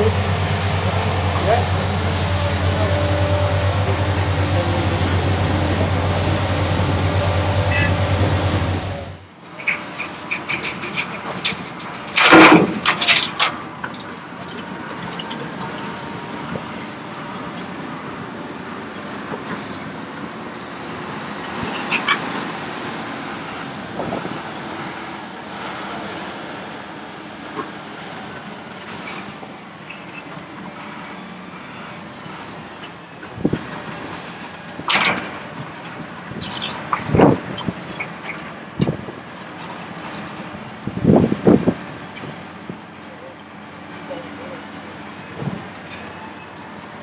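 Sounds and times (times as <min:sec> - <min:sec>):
excavator diesel engine under load: 0:00.0 - 0:47.0
bucket clanking on rock: 0:10.6 - 0:13.4.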